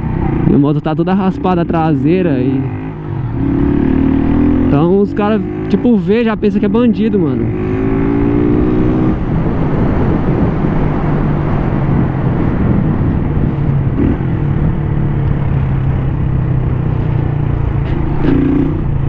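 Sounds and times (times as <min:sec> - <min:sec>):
motorcycle engine cruising: 0:00.0 - 0:19.0
wind on microphone: 0:07.4 - 0:16.3.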